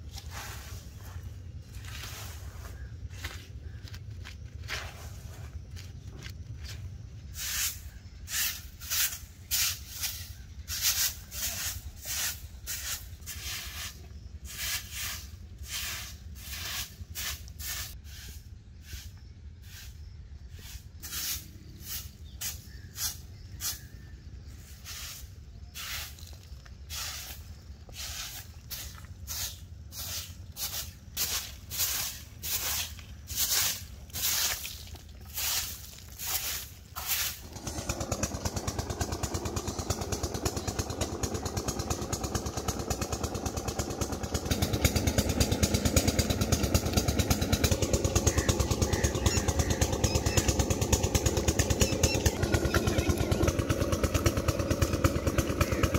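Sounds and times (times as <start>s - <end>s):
hand hoe scraping ground: 0.0s - 20.0s, 20.6s - 23.9s, 24.6s - 39.9s
twig broom sweeping earth: 0.0s - 39.3s.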